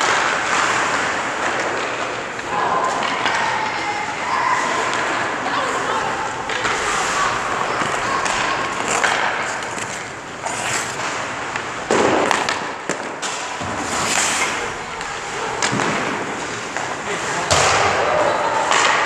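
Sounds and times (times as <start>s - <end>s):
hockey stick striking puck: 0.0s - 19.0s
skate blades scraping ice: 0.0s - 19.0s
skates spraying ice: 0.0s - 19.0s
puck knocking goalie pads: 4.9s - 18.0s.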